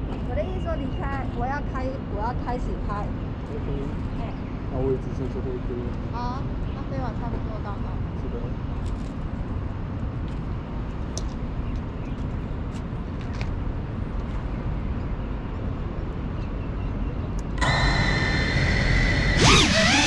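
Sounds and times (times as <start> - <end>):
low outdoor rumble: 0.0 - 20.0
drone motors whining: 17.5 - 20.0.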